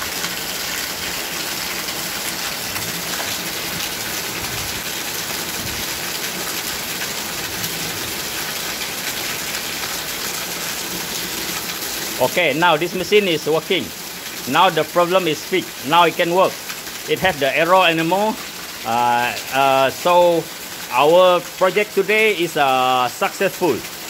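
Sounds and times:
water gushing into washing machine: 0.0 - 18.9.

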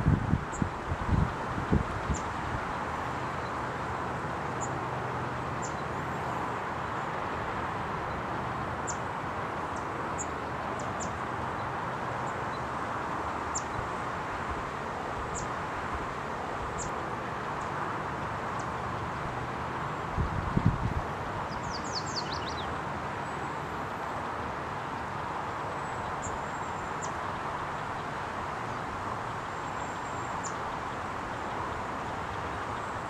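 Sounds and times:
wind buffeting microphone: 0.0 - 2.8, 20.1 - 21.4.

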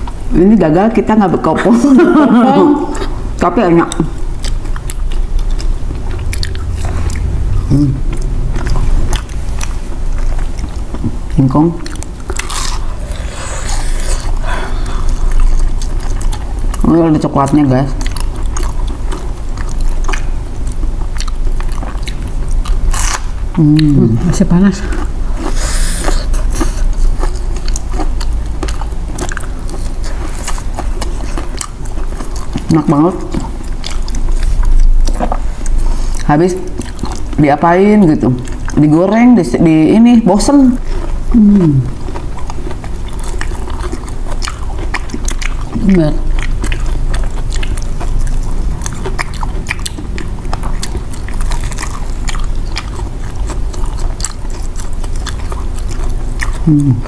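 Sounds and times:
chewing crunchy snack: 2.6 - 39.2, 40.8 - 57.0
wet mouth clicks: 43.2 - 57.0.

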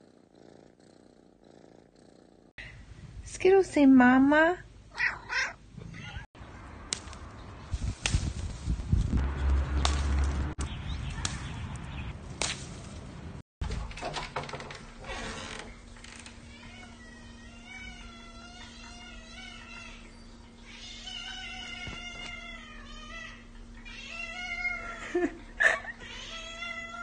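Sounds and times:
rustling and handling noise: 6.9 - 10.5.

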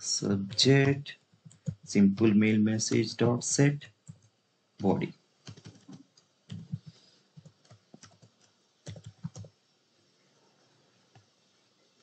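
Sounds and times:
typing on a keyboard: 1.5 - 3.1, 5.5 - 9.5.

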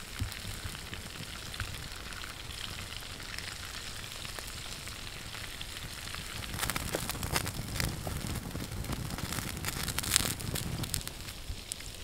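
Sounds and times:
oil sizzling with crackles and pops: 0.0 - 12.0.

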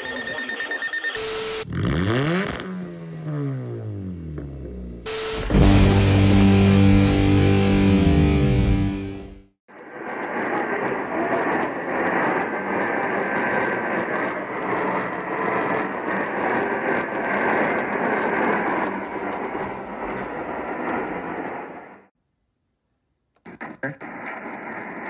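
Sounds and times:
radio static hiss: 23.4 - 25.0.

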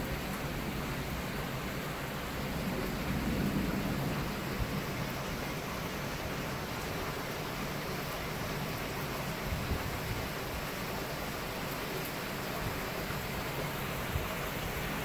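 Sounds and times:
steady rain: 0.0 - 15.0
thunder rumbling: 0.1 - 5.5.

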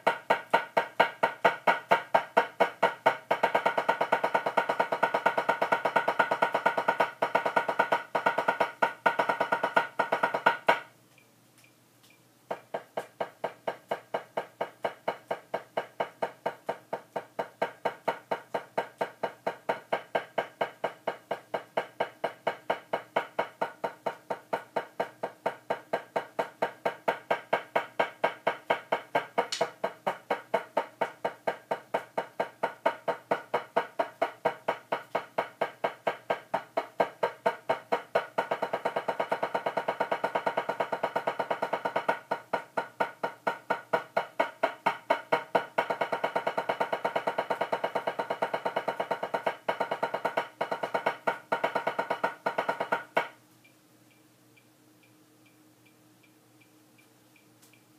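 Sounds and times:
drumsticks on practice pad: 11.6 - 53.4.

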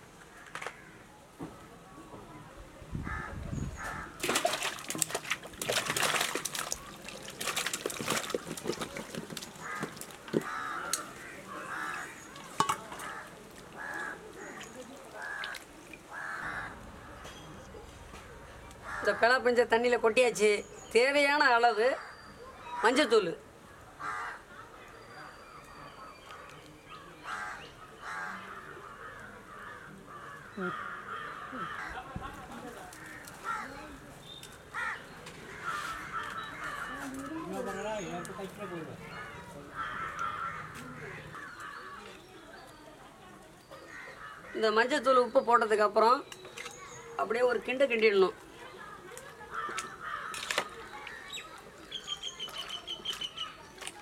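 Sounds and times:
crows cawing: 0.3 - 1.0, 3.0 - 4.2, 9.6 - 17.3, 18.8 - 19.4, 24.0 - 24.5, 27.2 - 32.2, 32.9 - 33.9, 34.7 - 38.4, 39.1 - 42.2, 43.8 - 44.7, 49.5 - 51.4
fruit splashing into pot of water: 4.2 - 11.1, 12.0 - 16.0.

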